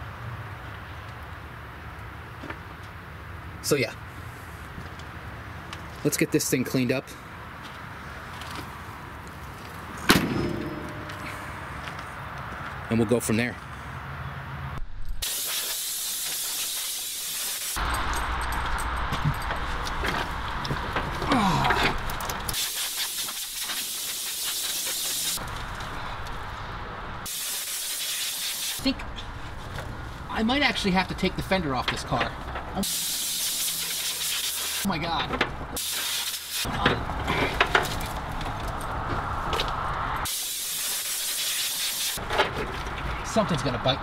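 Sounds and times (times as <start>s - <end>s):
compressed air hissing from blow gun: 15.2s - 17.8s, 22.5s - 25.4s, 27.2s - 28.9s, 32.8s - 34.9s, 35.8s - 36.7s, 40.3s - 42.2s.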